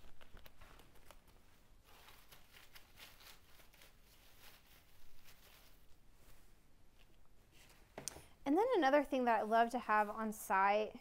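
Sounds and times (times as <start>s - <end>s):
leaves rustling: 0.6s - 6.5s.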